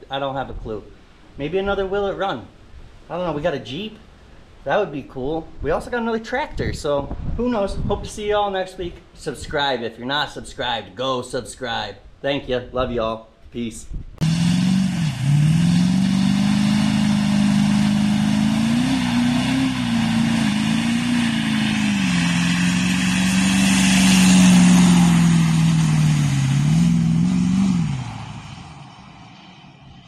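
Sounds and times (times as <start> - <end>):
engine revving and stopping: 14.2 - 30.0.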